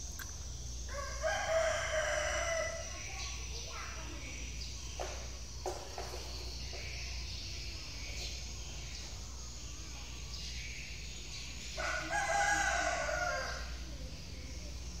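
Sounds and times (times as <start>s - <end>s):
rooster crowing: 0.9s - 2.9s, 11.8s - 13.8s.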